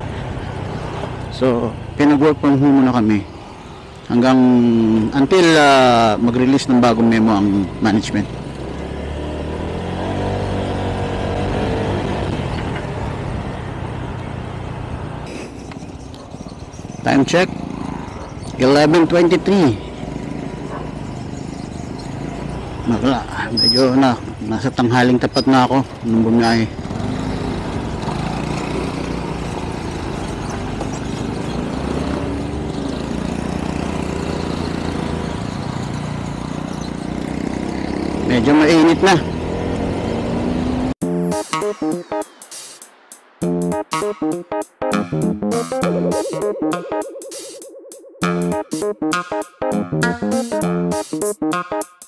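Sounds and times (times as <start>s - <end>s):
wind and road noise: 0.0s - 49.1s
motorcycle engine running: 19.6s - 24.5s, 25.8s - 38.5s.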